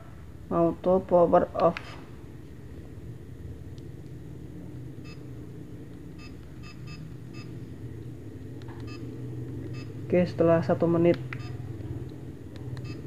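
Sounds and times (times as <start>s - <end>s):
steady low hum: 0.0s - 13.0s
short electronic beeps: 6.2s - 7.5s, 8.8s - 9.0s, 9.7s - 10.0s, 11.3s - 11.6s.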